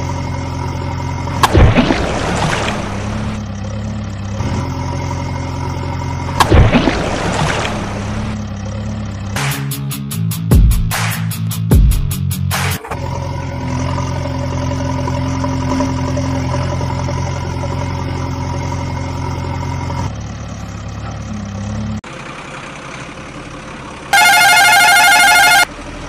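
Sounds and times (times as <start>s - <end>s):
truck engine running: 0.0s - 26.0s
electronic warbling tone: 24.2s - 25.7s.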